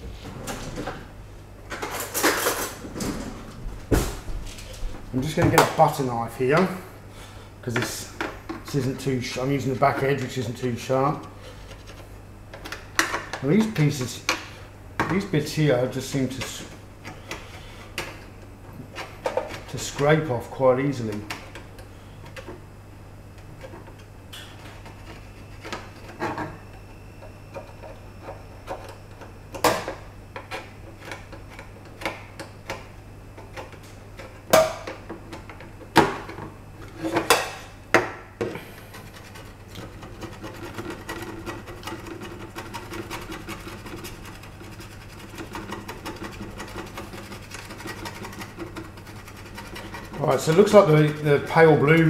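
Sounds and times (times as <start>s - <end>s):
knife scraping paint off plastic: 38.6s - 51.6s.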